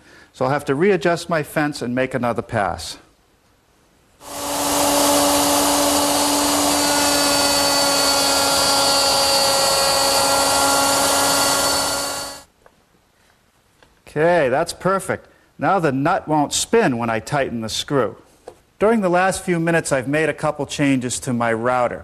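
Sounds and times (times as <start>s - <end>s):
router whining: 4.2s - 12.5s.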